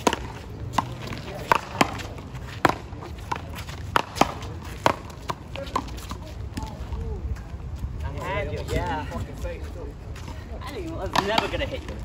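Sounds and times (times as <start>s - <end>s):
paddles hitting ball: 0.0s - 6.7s, 11.1s - 12.0s.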